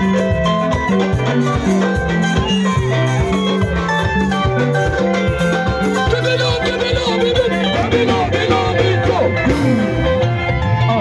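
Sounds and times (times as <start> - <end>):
live band dance music: 0.0 - 11.0
person singing: 6.1 - 9.9.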